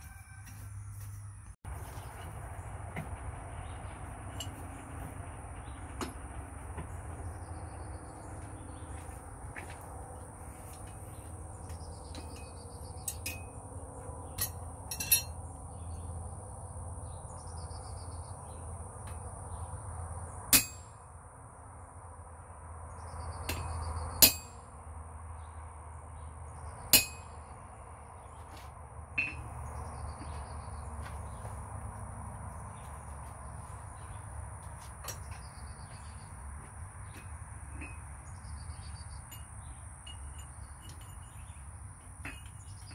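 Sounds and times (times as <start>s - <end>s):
hammer striking chisel on anvil: 12.1s - 13.6s, 14.4s - 15.4s, 20.5s - 21.0s, 23.5s - 24.6s, 26.9s - 27.4s, 29.2s - 29.5s.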